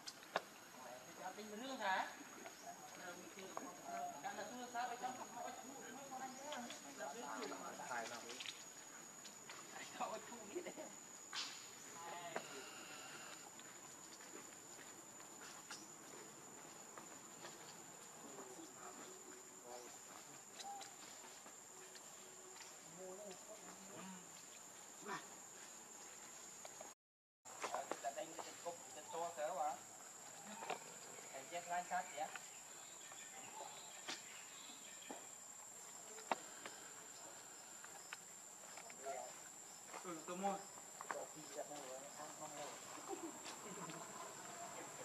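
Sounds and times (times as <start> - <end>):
high-pitched insect drone: 9.7 - 13.7.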